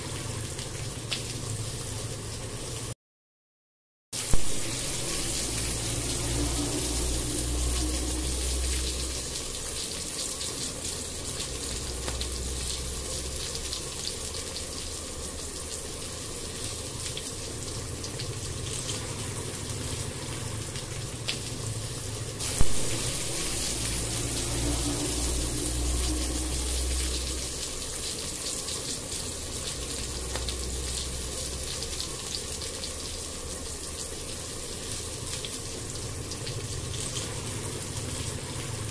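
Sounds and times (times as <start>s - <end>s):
onion sizzling in hot oil: 4.2s - 38.9s
low hum: 4.3s - 10.1s, 22.4s - 28.5s.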